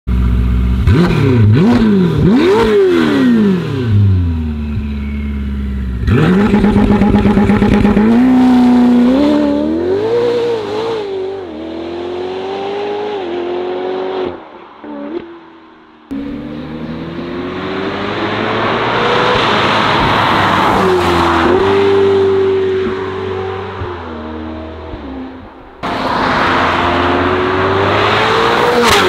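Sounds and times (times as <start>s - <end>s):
car engine revving: 0.6s - 14.4s, 16.1s - 29.0s
car accelerating through gears: 16.1s - 25.0s, 25.8s - 29.0s.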